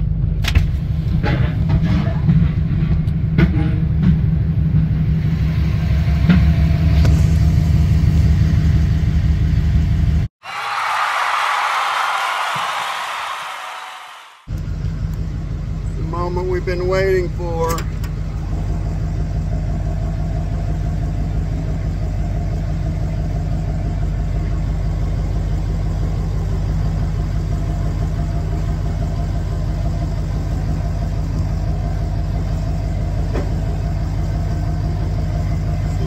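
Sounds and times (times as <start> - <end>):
truck engine idling: 14.5 - 36.0.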